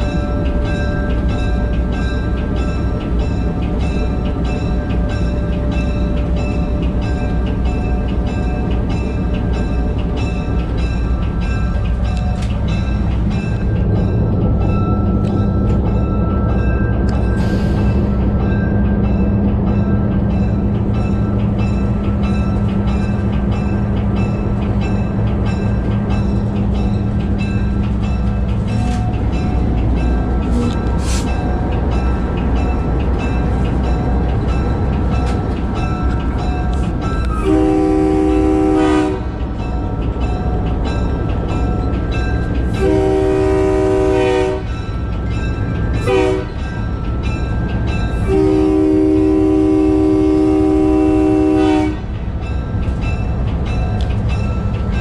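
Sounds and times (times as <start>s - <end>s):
diesel locomotive running: 0.0s - 55.0s
multi-chime air horn blasts: 37.3s - 39.3s, 42.8s - 44.7s, 46.0s - 46.6s, 48.3s - 52.0s.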